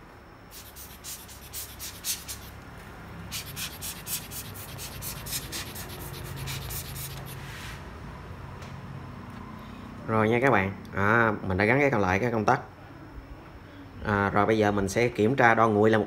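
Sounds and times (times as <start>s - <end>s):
scratchy rubbing on circuit board: 0.5s - 2.5s, 3.3s - 7.4s.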